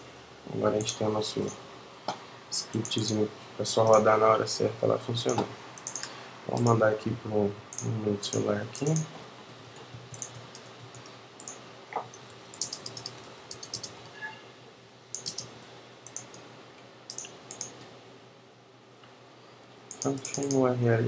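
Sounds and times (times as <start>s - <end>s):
faint steady hum: 0.0s - 21.0s
computer keyboard typing: 2.6s - 3.1s, 5.3s - 6.8s, 7.7s - 14.1s, 15.2s - 16.4s, 17.1s - 17.8s, 19.9s - 20.6s
mouse clicks: 5.3s - 6.7s, 10.1s - 14.0s, 15.1s - 16.4s, 17.1s - 17.8s, 19.9s - 20.6s.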